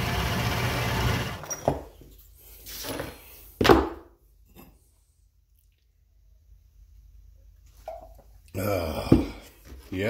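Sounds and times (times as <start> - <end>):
metal lathe running: 0.0 - 1.4.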